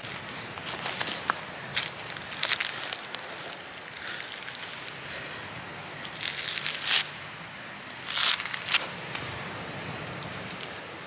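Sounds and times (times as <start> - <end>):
coconut husk tearing: 0.0 - 5.0, 5.8 - 7.1, 7.9 - 9.2.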